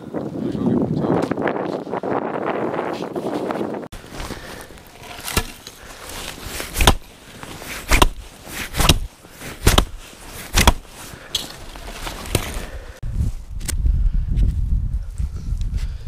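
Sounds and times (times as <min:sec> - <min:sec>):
axe chopping log: 0:05.0 - 0:05.8, 0:06.5 - 0:07.1, 0:07.7 - 0:10.9, 0:12.2 - 0:12.6.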